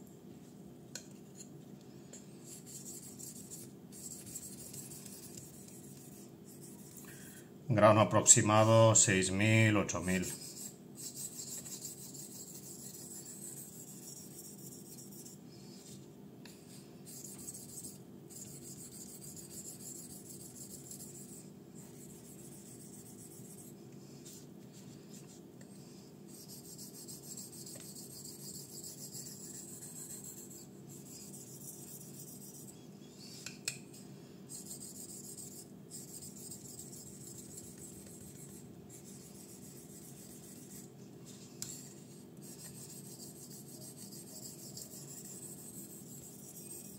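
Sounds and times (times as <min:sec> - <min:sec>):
knife blade rasping on whetstone: 0:26.4 - 0:32.7, 0:41.6 - 0:46.9.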